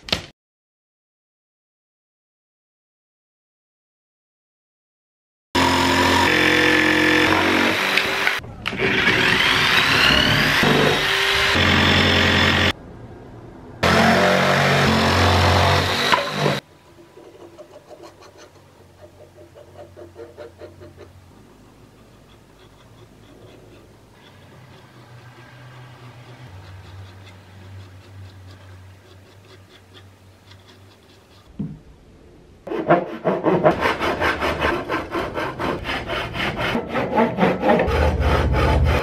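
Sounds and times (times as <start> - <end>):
electric jigsaw cutting plywood: 5.6 - 12.7, 13.8 - 16.6.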